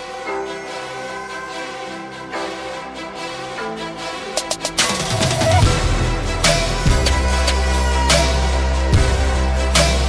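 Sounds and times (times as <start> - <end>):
heavy bass line: 4.5 - 10.0.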